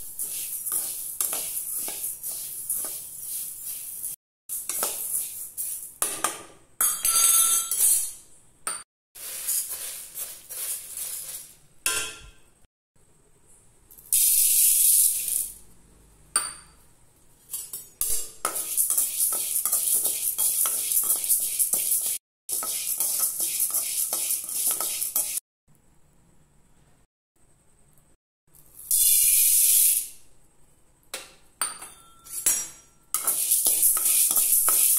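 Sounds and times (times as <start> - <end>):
metal spatula scraping roasting seeds: 0.0 - 6.0, 9.2 - 11.6, 18.5 - 25.4, 33.2 - 34.9.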